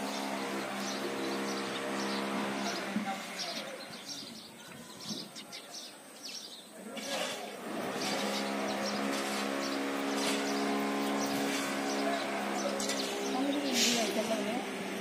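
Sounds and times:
steady motor hum: 0.0 - 3.9, 7.6 - 15.0
small birds chirping: 0.0 - 15.0.

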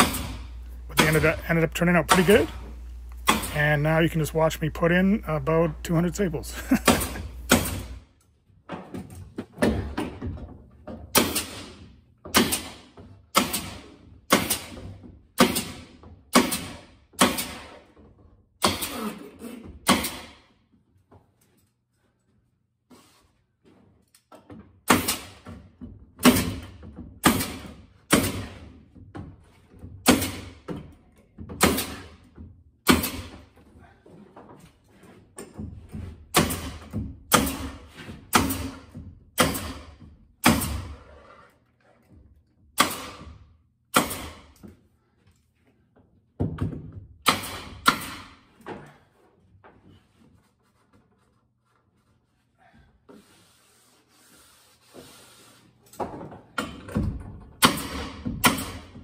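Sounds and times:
pneumatic stapler shots: 0.0 - 1.2, 6.9 - 8.0, 11.1 - 14.8, 15.4 - 17.8, 18.6 - 19.1, 19.8 - 20.5, 24.9 - 25.4, 26.2 - 28.7, 30.0 - 30.6, 31.6 - 32.2, 32.8 - 33.4, 36.3 - 41.0, 42.8 - 44.6, 47.2 - 48.4, 57.6 - 59.0.

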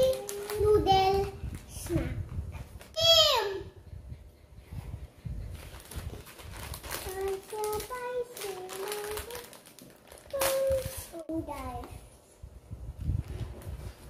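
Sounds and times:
foil snack bag crinkling: 0.0 - 0.8, 5.6 - 11.2.

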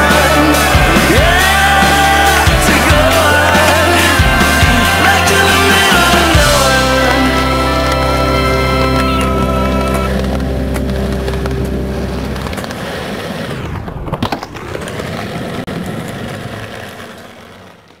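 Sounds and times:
rock music: 0.0 - 12.9
skateboard wheels rolling on concrete: 0.0 - 18.0
skateboard clacks: 8.8 - 18.0.

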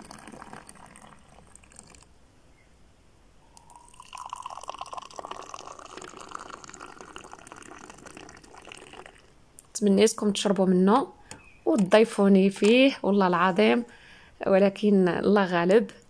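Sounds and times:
tea pouring into a glass: 0.0 - 2.1, 3.6 - 9.3.

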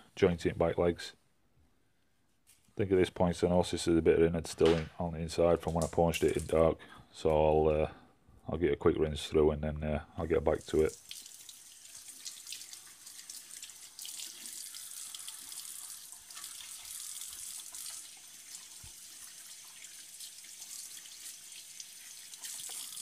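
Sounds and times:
water splashing in sink: 5.7 - 6.6, 10.4 - 23.0
kitchen tap running: 10.4 - 23.0.

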